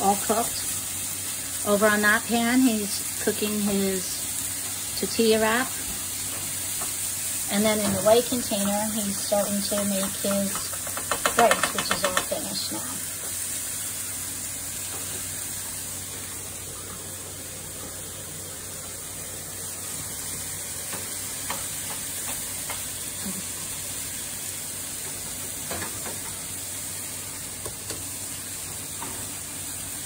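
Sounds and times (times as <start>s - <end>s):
meat sizzling in frying pan: 0.0s - 30.0s
spatula scraping and tapping: 9.6s - 12.5s.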